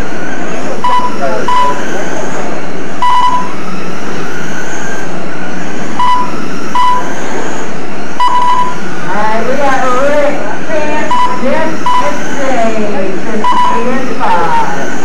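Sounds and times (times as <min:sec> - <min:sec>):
rc truck motor whine: 0:00.0 - 0:15.0
short high beeps: 0:00.8 - 0:01.8, 0:03.0 - 0:03.5, 0:06.0 - 0:07.0, 0:08.2 - 0:08.8, 0:11.0 - 0:12.2, 0:13.4 - 0:13.9.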